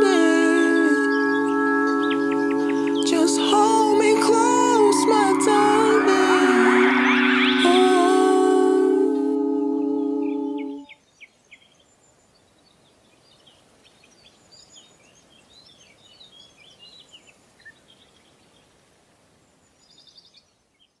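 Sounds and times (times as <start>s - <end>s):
birds chirping and twittering: 0.0s - 9.4s
faint hiss: 0.0s - 20.9s.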